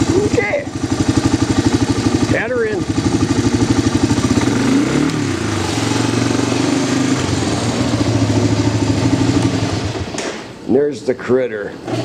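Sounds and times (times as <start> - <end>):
atv engine running: 0.0 - 10.2.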